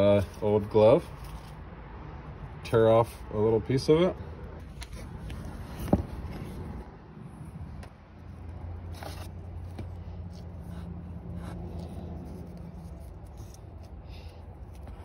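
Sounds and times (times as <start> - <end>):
steady low hum: 4.2 - 15.0
glove scrap rustling in fingers: 8.9 - 15.0.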